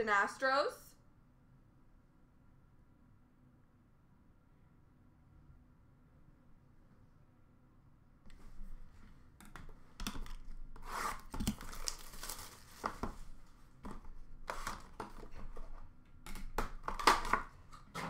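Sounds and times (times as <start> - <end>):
wrapper ripping and crinkling: 10.2 - 13.5, 14.1 - 15.7.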